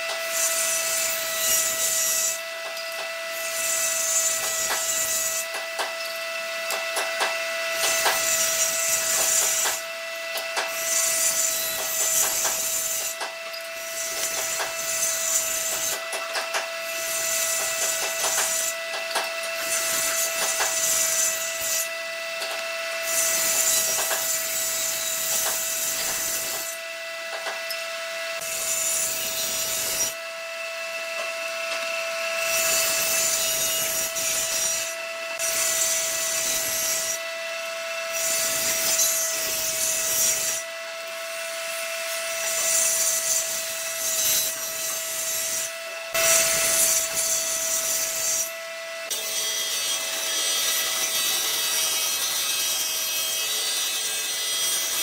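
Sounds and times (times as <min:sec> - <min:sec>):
bandsaw cutting wood: 0:00.0 - 0:55.0
table saw cutting wood: 0:00.0 - 0:55.0.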